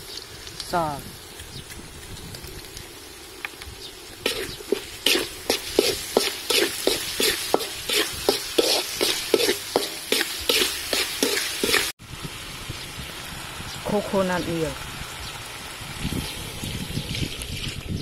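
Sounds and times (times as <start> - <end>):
low sizzle: 0.0 - 18.0
metal spatula scraping pan: 4.3 - 11.9.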